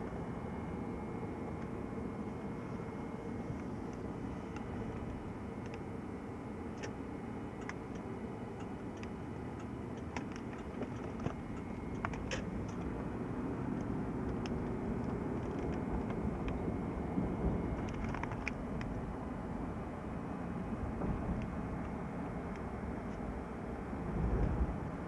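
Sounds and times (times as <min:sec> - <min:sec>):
car engine and road rumble: 0:00.0 - 0:25.0
small clicks and rattles: 0:07.6 - 0:12.9, 0:14.2 - 0:16.6, 0:17.7 - 0:19.0.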